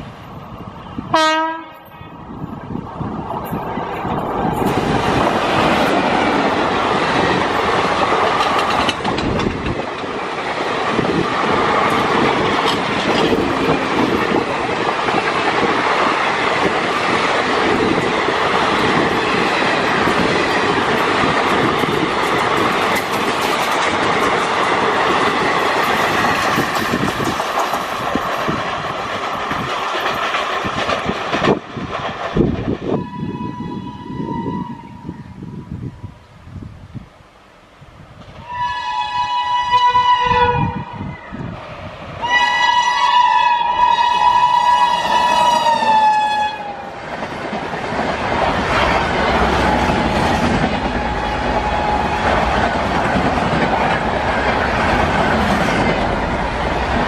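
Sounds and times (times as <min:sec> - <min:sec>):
train wheels rushing on track: 0:00.0 - 0:57.0
locomotive horn blast: 0:01.1 - 0:01.9, 0:38.4 - 0:41.0, 0:42.2 - 0:46.9.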